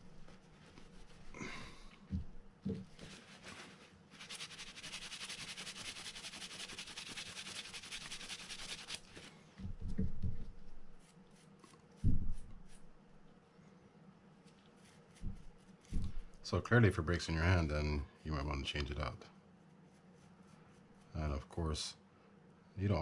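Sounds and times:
toothbrush scrubbing: 4.1 - 9.3.

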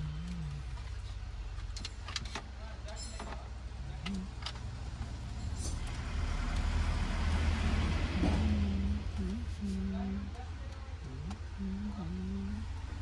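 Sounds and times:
van driving past: 4.6 - 10.5.

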